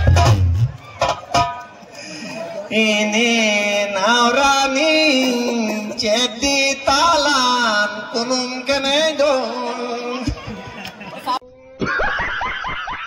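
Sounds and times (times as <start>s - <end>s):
person singing into a microphone: 2.6s - 10.8s.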